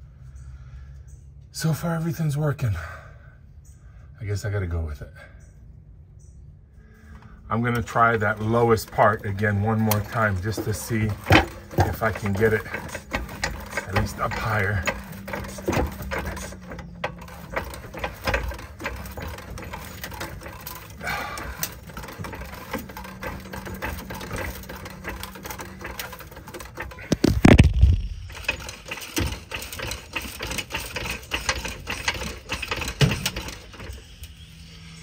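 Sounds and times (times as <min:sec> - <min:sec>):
panel clicking and rattling: 0:07.5 - 0:34.1.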